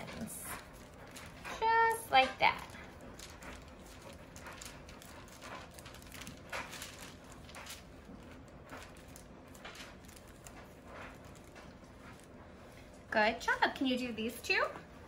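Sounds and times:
parchment paper rustling: 0.0 - 12.9.

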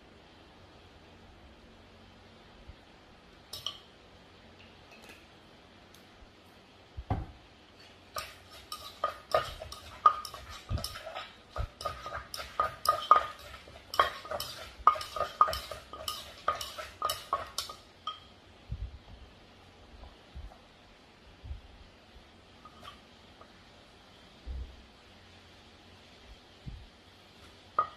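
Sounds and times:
wooden pestle pounding in mortar: 8.2 - 17.8.

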